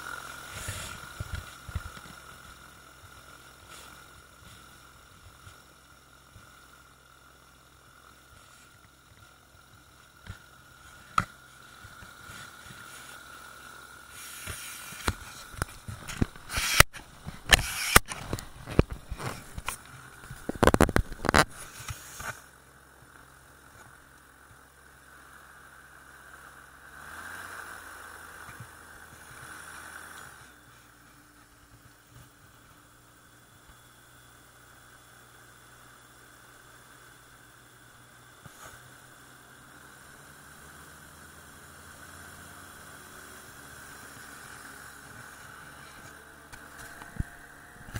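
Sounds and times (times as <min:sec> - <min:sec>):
aircraft engine running: 0:00.0 - 0:24.7.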